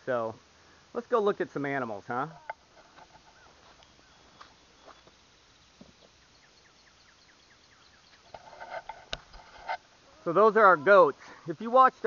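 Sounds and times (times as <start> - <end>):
bird chirping: 3.2 - 8.8.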